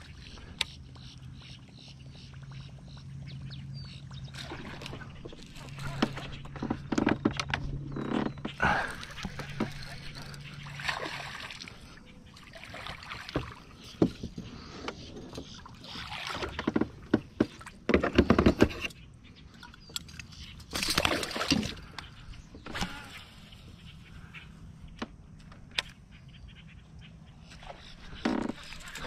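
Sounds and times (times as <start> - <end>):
fish splashing at water surface: 8.7 - 11.9
knocks and clicks on kayak: 13.3 - 15.6, 16.4 - 19.0.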